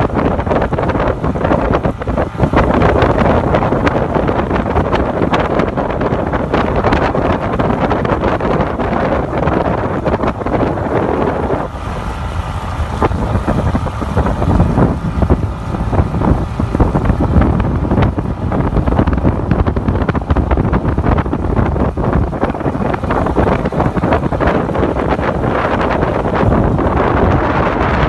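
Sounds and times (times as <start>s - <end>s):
motorboat engine rumble: 0.0s - 28.0s
wind buffeting microphone: 0.0s - 28.0s.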